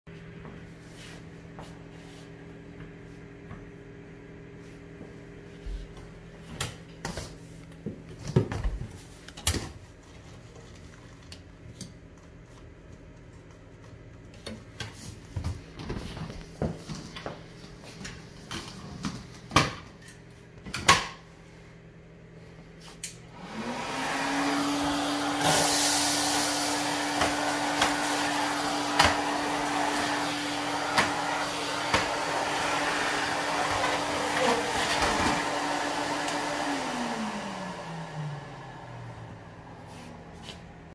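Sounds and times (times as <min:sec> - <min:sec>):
vacuum suction hum: 0:21.4 - 0:40.9.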